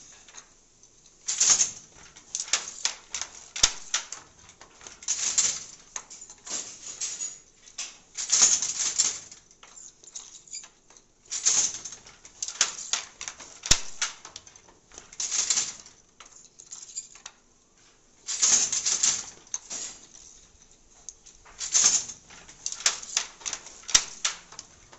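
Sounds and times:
handloom rustling clatter: 0.0 - 24.9
loom batten knocks: 21.1 - 24.9.

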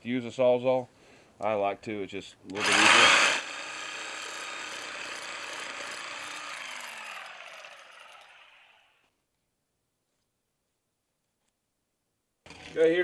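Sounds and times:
reciprocating saw motor: 2.5 - 9.1.

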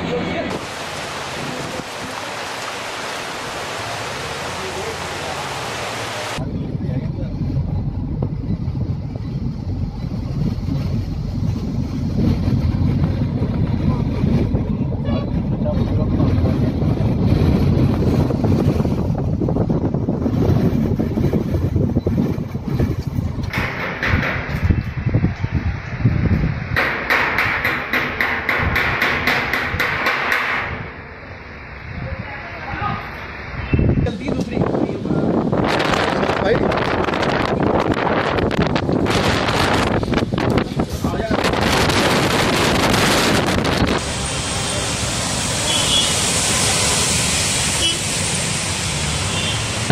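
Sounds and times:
storm wind buffeting microphone: 6.4 - 26.8, 33.7 - 44.5.

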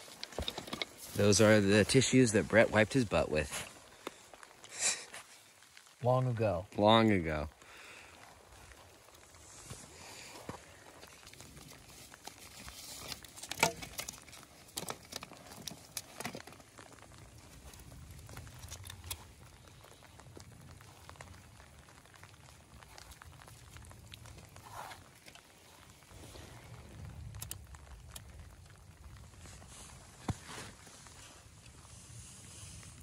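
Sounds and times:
sticks being handled and stacked: 0.0 - 1.5, 12.1 - 17.0
wooden slats cracking and clattering: 12.9 - 16.7.

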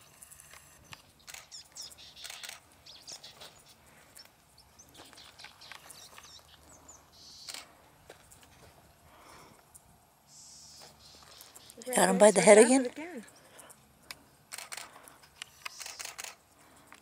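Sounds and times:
rustling on gravel: 1.6 - 9.0.

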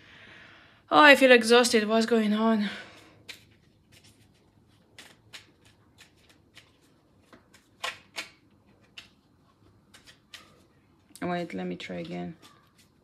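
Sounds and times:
cards being shuffled: 2.9 - 10.8, 11.9 - 13.0.

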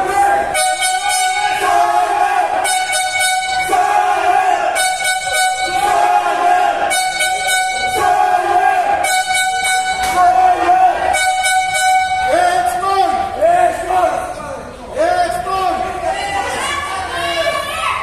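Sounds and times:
loud music: 0.0 - 12.8
held horn-like tone: 0.4 - 12.8.

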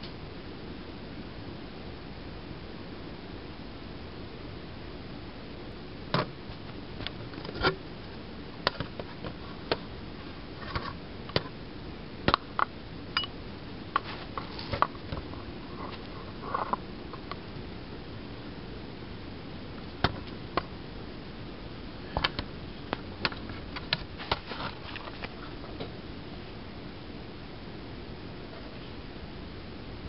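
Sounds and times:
steady hiss: 0.0 - 30.0.

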